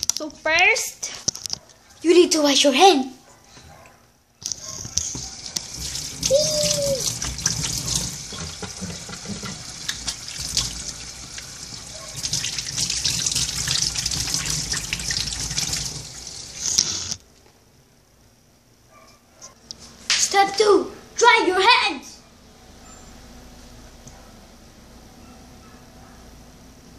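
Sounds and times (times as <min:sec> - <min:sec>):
tap water splashing over hands: 0:05.0 - 0:16.2.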